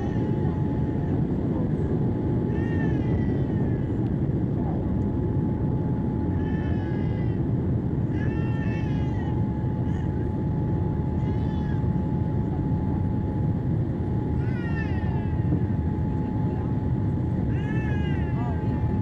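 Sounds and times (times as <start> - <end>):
airliner cabin engine hum: 0.0 - 19.0.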